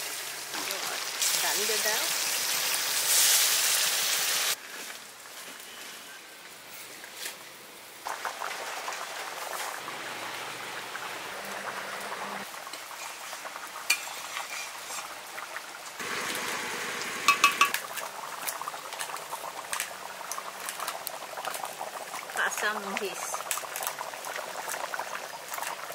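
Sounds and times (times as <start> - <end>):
curry simmering in pan: 8.0 - 17.2, 17.8 - 25.9
metal ladle knocking on pan: 17.3 - 17.8.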